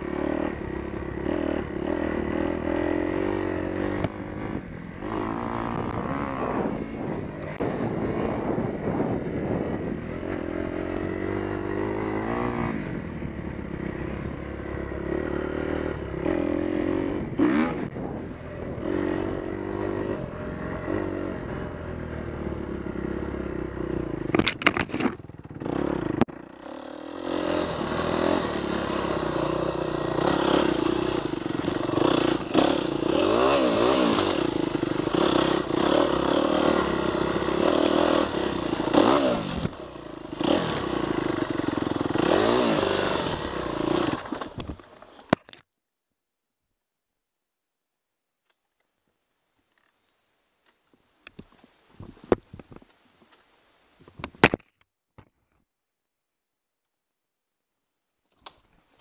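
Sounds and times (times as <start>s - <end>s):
motocross bike engine revving: 0.0s - 44.7s.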